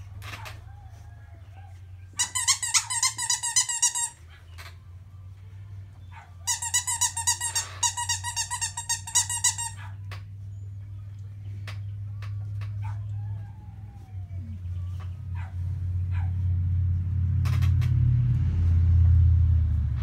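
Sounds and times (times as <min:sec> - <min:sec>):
dog toy squeaking: 0:02.2 - 0:04.3, 0:06.4 - 0:09.9.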